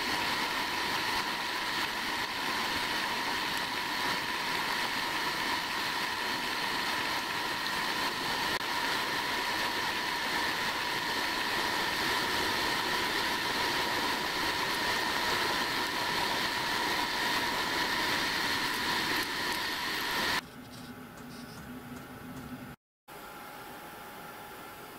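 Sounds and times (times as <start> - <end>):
end mill cutting hiss: 0.0 - 20.4
milling machine whining: 0.0 - 20.4.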